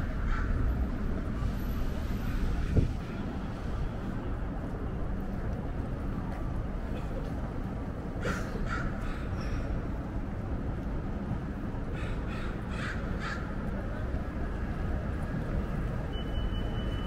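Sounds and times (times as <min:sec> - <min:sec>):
low rumble of city traffic: 0:00.0 - 0:17.0
crow cawing: 0:12.0 - 0:13.5.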